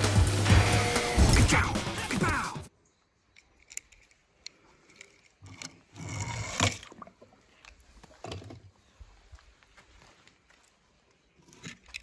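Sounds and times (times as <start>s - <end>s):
small handling clicks: 3.3s - 5.9s, 11.5s - 12.0s.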